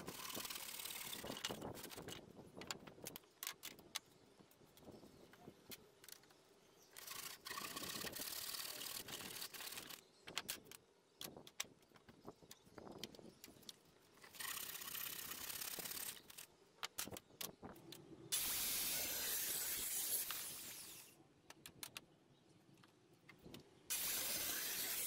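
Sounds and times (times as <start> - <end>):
wood handling clicks and knocks: 1.3 - 7.1, 16.2 - 18.1, 21.4 - 23.7
circular saw cutting wood: 18.3 - 21.2, 23.9 - 25.0.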